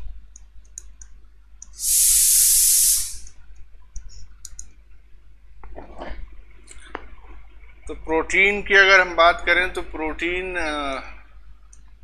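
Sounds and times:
loud steady hiss: 1.6 - 3.4.

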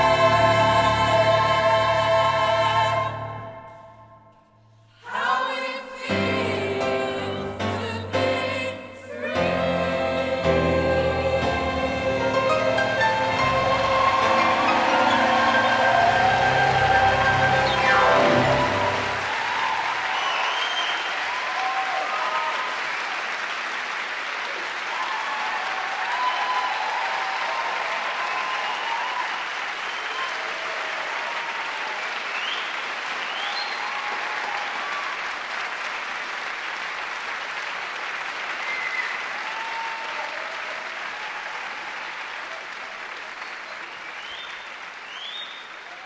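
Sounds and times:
audience applauding: 10.1 - 46.0
scattered cheers: 13.4 - 23.2, 24.5 - 35.6, 38.6 - 46.0.

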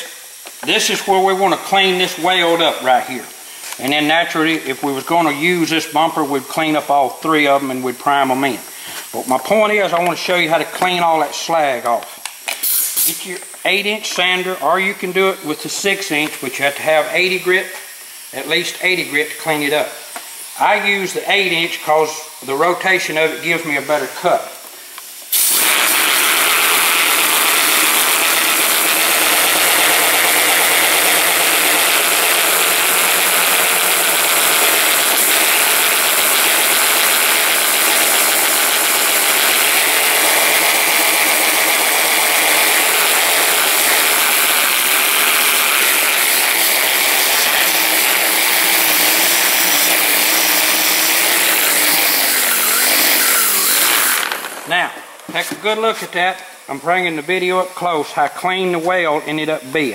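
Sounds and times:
air sander grinding plastic: 25.3 - 56.2.

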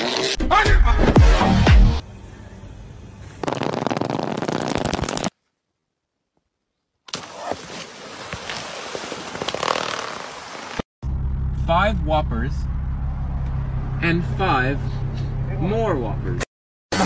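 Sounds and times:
water gushing: 7.2 - 10.8.

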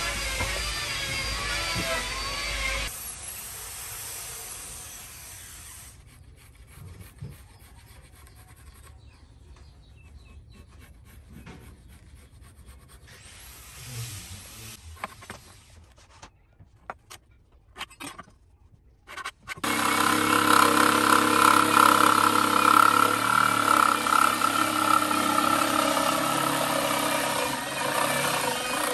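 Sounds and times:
pencil scratching on wood: 6.0 - 9.3, 10.0 - 13.6
electric hand planer running: 19.6 - 28.9.

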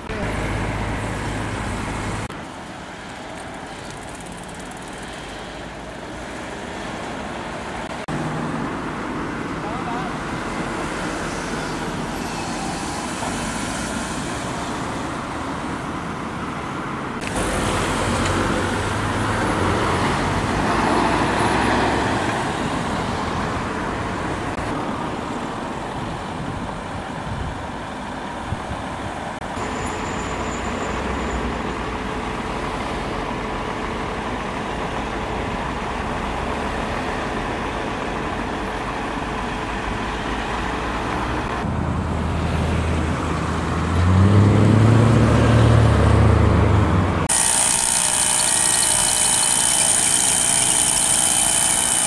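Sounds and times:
truck engine running: 0.0 - 14.0, 27.7 - 52.0
road traffic: 0.0 - 52.0.

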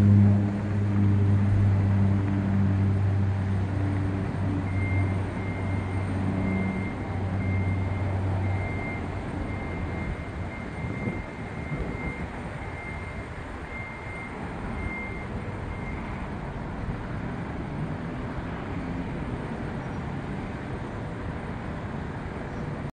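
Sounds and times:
turboprop engines droning: 0.0 - 22.9.

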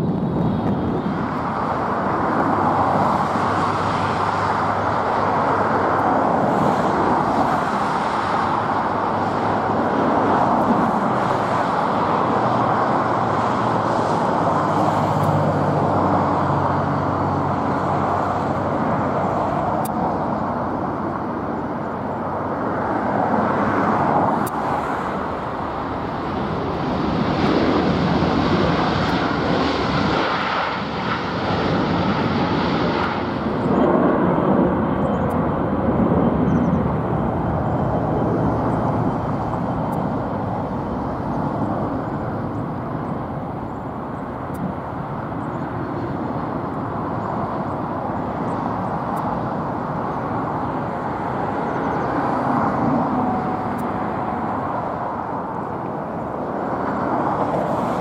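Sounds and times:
jet airliner landing: 0.0 - 58.0.

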